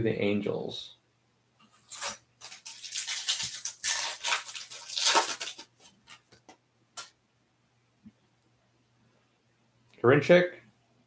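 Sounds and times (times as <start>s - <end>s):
foil wrapper tearing and crumpling: 1.8s - 6.4s.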